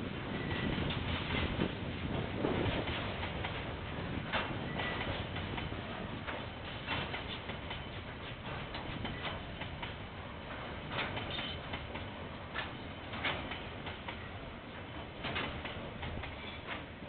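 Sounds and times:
train clicks and knocks: 0.0 - 17.0
train rumble: 0.0 - 17.0.

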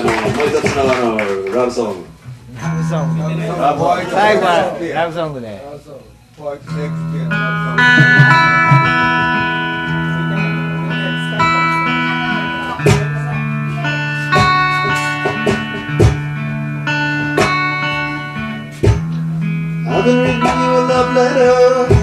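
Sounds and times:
guitar plucked chords: 2.1 - 4.8, 6.6 - 22.0
sharp guitar hits: 6.7 - 22.0.

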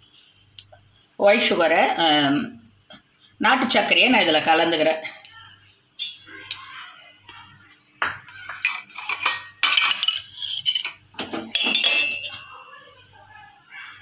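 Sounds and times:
metal spoon scraping a mug: 8.3 - 12.6
tea strainer clinking on mug: 8.5 - 12.5.

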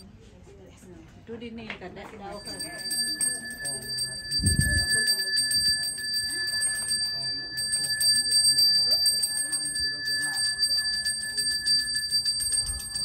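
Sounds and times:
faint voices: 0.0 - 13.0
hand bell ringing rapidly: 2.3 - 13.0.

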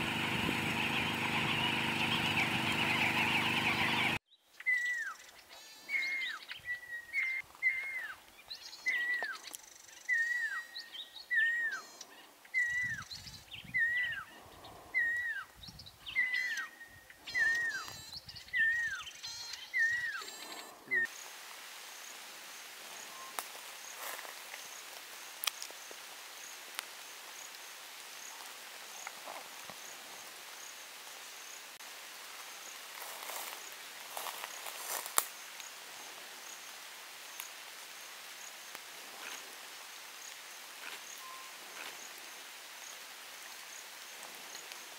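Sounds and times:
owl whistled calls sliding downward: 17.3 - 21.1
high insect chirp: 32.4 - 44.7.

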